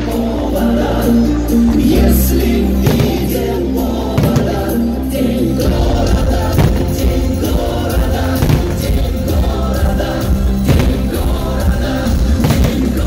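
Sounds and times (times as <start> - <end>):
music with singing: 0.0 - 13.0
sharp hits: 2.9 - 3.4.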